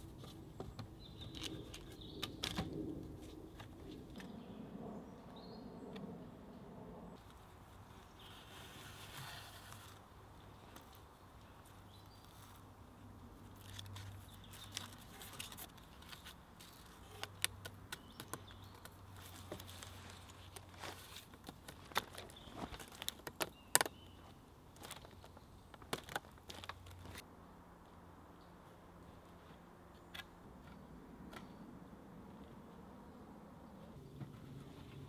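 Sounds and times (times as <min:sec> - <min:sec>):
clicks and creaks of cord and wood: 0:00.2 - 0:04.3, 0:13.4 - 0:27.3.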